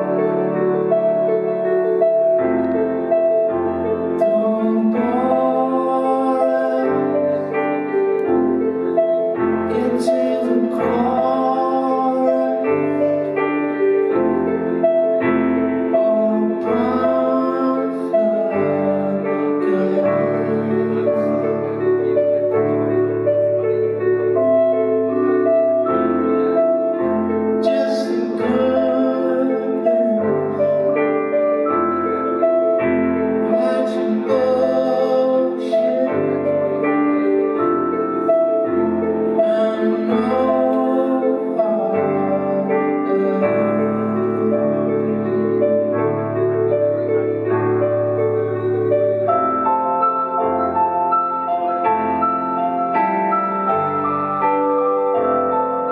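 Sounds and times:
slow piano chords: 0.0 - 55.9
man singing: 3.9 - 22.6, 26.4 - 31.6, 33.4 - 46.2, 47.8 - 50.0.

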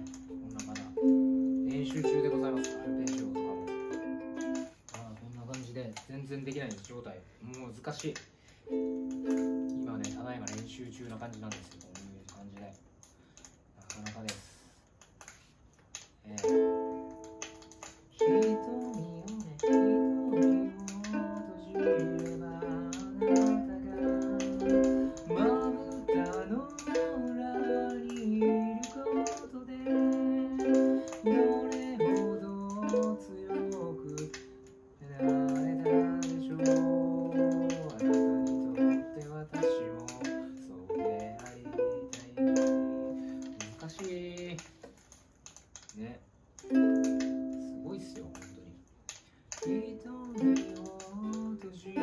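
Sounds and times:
ukulele strumming chords: 0.0 - 4.9, 8.7 - 11.2, 16.4 - 44.0, 46.6 - 48.8, 49.6 - 52.0.

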